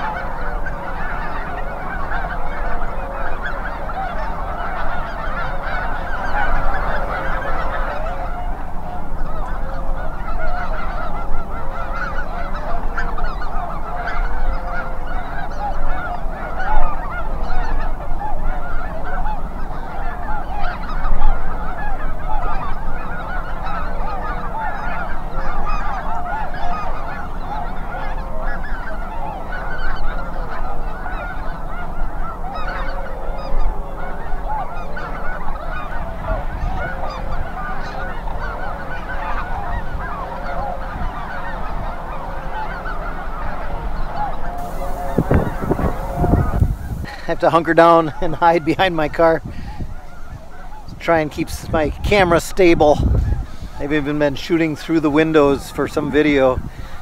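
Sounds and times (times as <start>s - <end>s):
geese calling: 0.0s - 57.0s
wind on microphone: 26.7s - 57.0s.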